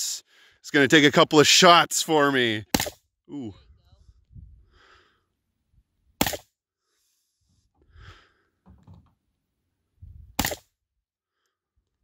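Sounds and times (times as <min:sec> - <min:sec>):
rifle shots: 0:02.7 - 0:03.0, 0:10.4 - 0:10.7.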